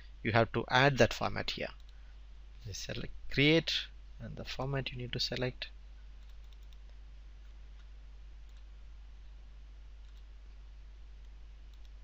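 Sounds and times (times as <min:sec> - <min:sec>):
low electrical hum and hiss: 0:00.0 - 0:12.0
computer mouse clicks: 0:06.2 - 0:08.7, 0:10.0 - 0:10.3, 0:11.2 - 0:12.0.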